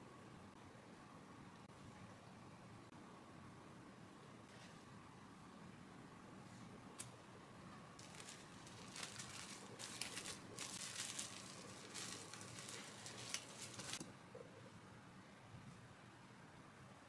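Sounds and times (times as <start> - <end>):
plastic cling wrap crinkling: 8.0 - 14.0.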